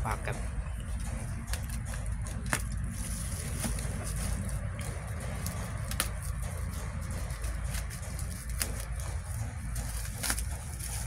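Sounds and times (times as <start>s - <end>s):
steady low rumble: 0.0s - 11.0s
scissors snipping: 0.9s - 11.0s
plastic wrapping rustling: 2.4s - 6.4s, 7.0s - 11.0s.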